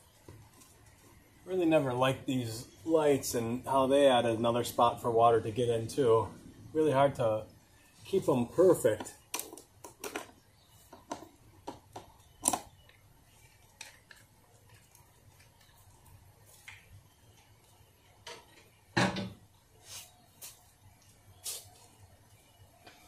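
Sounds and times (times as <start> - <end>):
clicks and clatter of small hard parts: 9.3 - 10.4.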